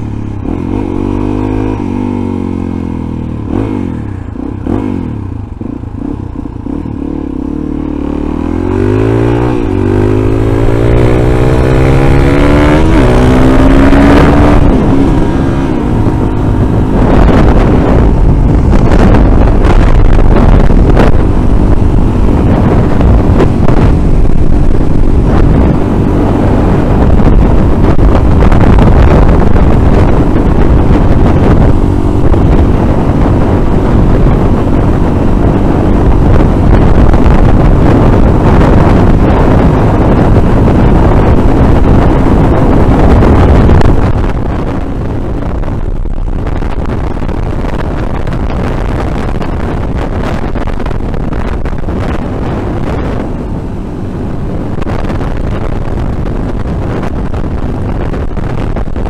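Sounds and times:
motorcycle engine accelerating: 0.0 - 59.0
wind rush on microphone: 0.0 - 59.0.

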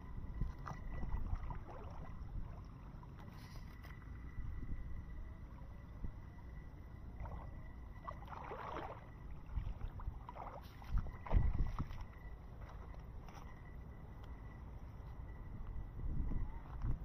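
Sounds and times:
footsteps sloshing through water: 0.4 - 4.0, 7.2 - 13.8
water splashing: 0.5 - 3.3, 7.2 - 12.2.

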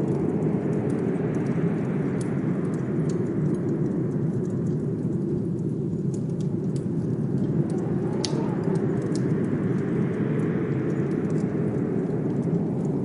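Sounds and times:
fireplace crackling and popping: 0.0 - 13.0
blizzard wind rushing: 6.6 - 13.0.

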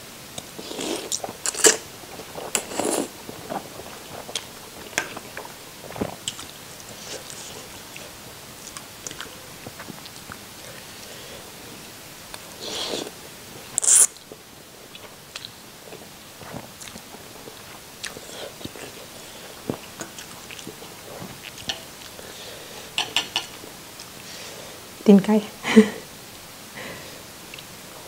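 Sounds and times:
noodles being slurped: 0.6 - 7.8.

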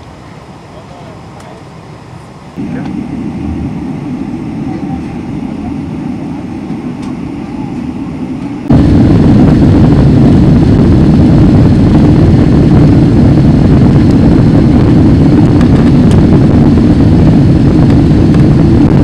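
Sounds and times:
people-mover train rumble: 0.0 - 9.7
jet engine and rolling noise in cabin: 0.0 - 19.0.

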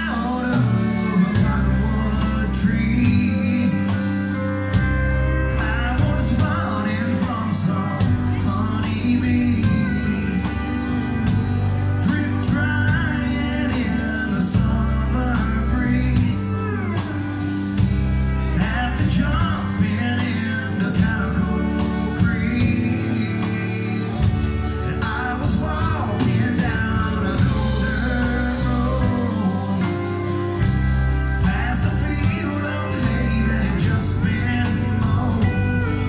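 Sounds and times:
country rock band playing: 0.0 - 36.0
man singing: 0.0 - 36.0.

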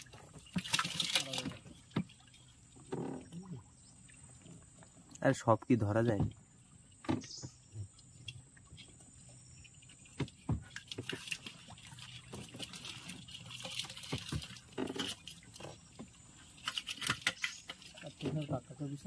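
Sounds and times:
water dripping and splashing: 0.0 - 19.0
knocks and clicks on wooden boat: 6.0 - 6.4, 7.0 - 7.6.

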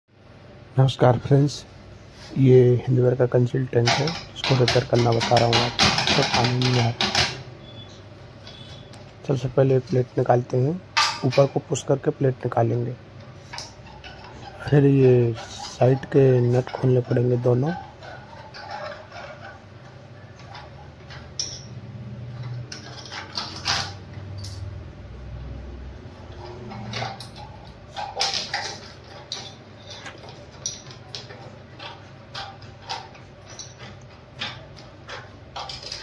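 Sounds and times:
plastic rattles: 3.9 - 7.4, 26.4 - 36.0.

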